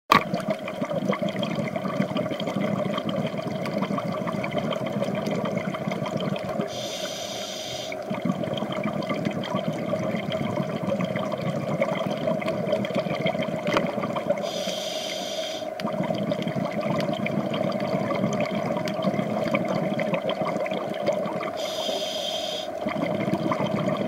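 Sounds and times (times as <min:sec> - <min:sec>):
fine underwater crackle: 0:00.1 - 0:24.0
muffled underwater hiss: 0:00.4 - 0:24.0
brighter hiss: 0:06.7 - 0:08.0, 0:14.5 - 0:15.7, 0:21.6 - 0:22.7.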